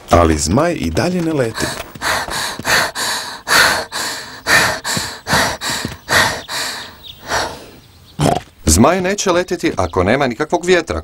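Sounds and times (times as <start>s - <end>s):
cartoon character panting: 1.5s - 7.7s.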